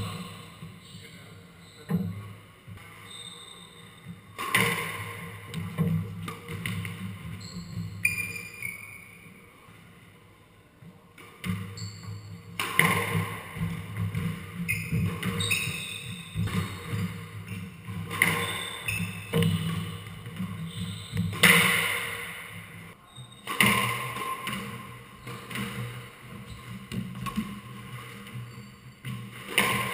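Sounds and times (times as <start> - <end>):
shoe squeaks on wooden floor: 1.6 - 2.0, 3.0 - 4.2, 7.4 - 9.2, 11.8 - 12.5, 14.6 - 17.6, 18.2 - 21.5, 22.9 - 23.5, 28.3 - 29.1
squash ball hits: 4.4 - 7.2, 12.5 - 28.4, 29.0 - 29.9.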